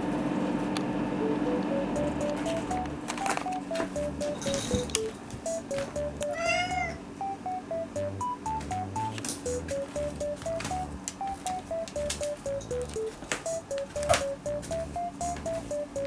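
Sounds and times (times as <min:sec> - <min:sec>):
light background music: 0:01.2 - 0:16.0
cat meowing: 0:06.3 - 0:07.0.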